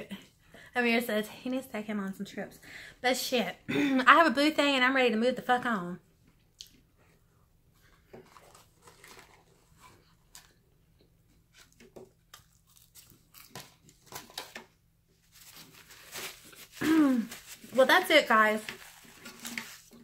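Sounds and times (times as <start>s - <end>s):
crinkling: 8.1s - 10.6s, 11.4s - 20.0s
chewing and biting food: 12.3s - 14.1s.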